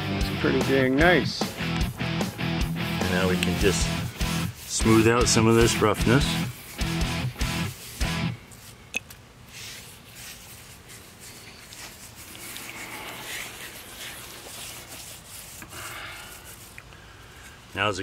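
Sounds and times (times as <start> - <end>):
hand scraping rough concrete: 3.0 - 8.8, 9.5 - 17.6.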